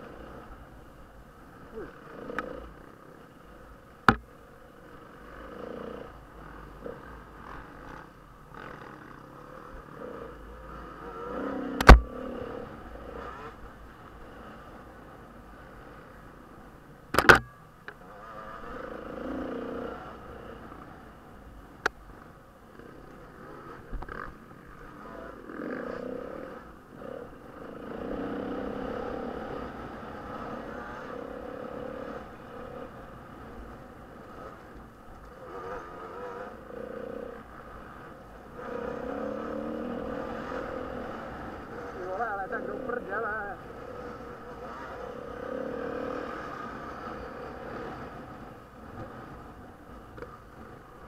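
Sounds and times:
dirt bike engine: 0.0 - 51.0
sharp click: 17.1 - 17.6
motorcycle engine under load: 17.1 - 18.0.

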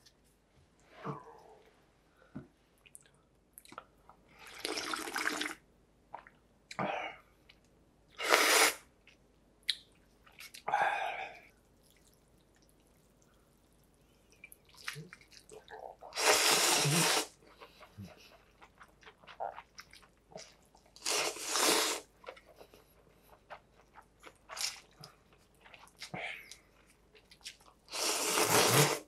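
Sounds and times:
person slurping noodles: 8.2 - 8.8, 16.1 - 17.4, 21.0 - 22.1, 27.9 - 29.0.

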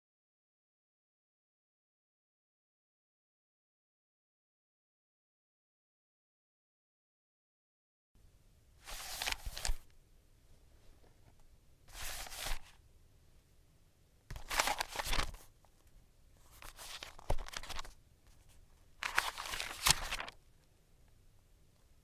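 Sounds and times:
paper stickers rustling and crinkling: 8.8 - 9.9, 11.9 - 12.8, 14.3 - 15.5, 16.4 - 20.4.

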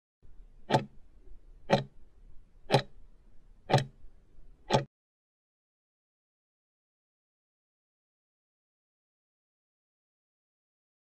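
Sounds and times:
countdown timer ticking: 0.7 - 0.9, 1.7 - 1.9, 2.7 - 2.9, 3.7 - 4.0, 4.7 - 4.9.

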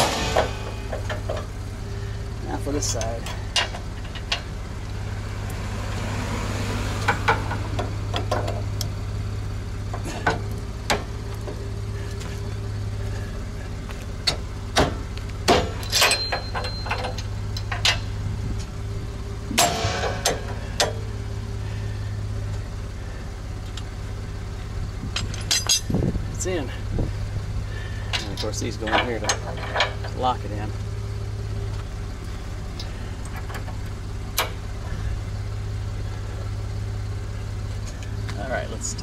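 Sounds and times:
metal strike ringing: 0.0 - 1.3, 19.5 - 21.0
metal clanks and clicks: 0.0 - 1.6, 2.7 - 4.5, 7.0 - 8.9, 9.9 - 11.6, 13.9 - 18.7, 19.5 - 21.0, 25.1 - 26.0, 28.1 - 30.4, 32.8 - 34.6
scraping metal rattle: 0.0 - 4.6, 14.3 - 18.2, 19.5 - 21.1, 27.7 - 30.5
steady low hum: 0.0 - 39.0.

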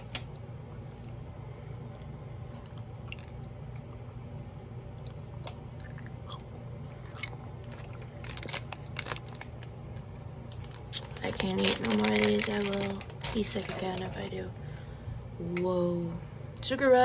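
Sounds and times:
steady low hum: 0.0 - 17.0
person chewing candy: 1.8 - 4.3, 4.9 - 9.6.

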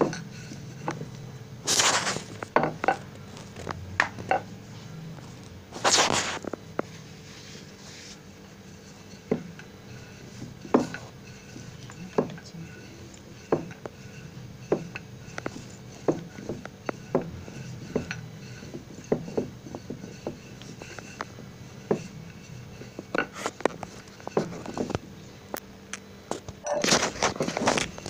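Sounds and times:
rolling pin knocking on a board: 9.3 - 9.6, 10.4 - 11.1, 13.4 - 22.2.

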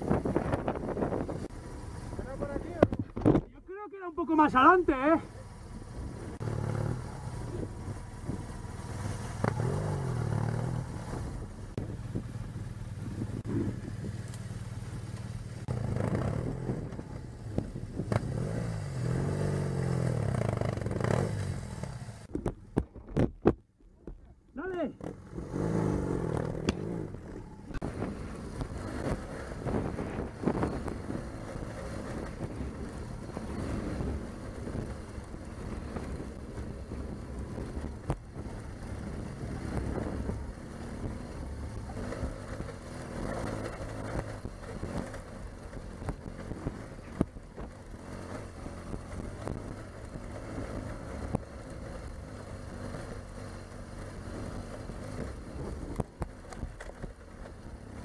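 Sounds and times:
wind on microphone: 0.0 - 1.6, 6.0 - 14.3, 15.7 - 21.5, 25.6 - 48.0
motorcycle engine running: 0.0 - 3.3, 4.4 - 22.9, 24.8 - 58.0.

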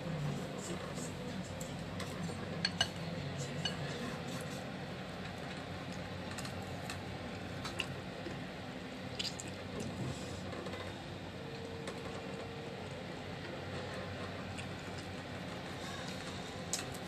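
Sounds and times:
low background hum: 0.0 - 17.0
chewing and slurping: 9.1 - 10.4.

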